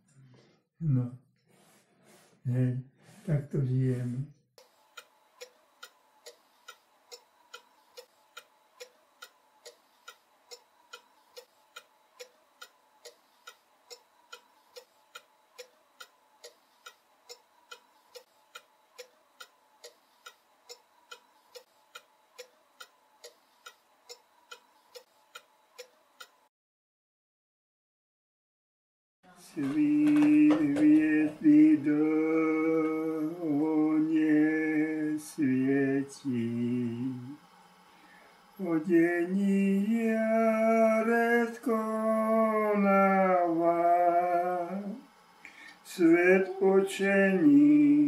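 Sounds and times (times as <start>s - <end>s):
pendulum clock ticking: 4.6s - 26.5s.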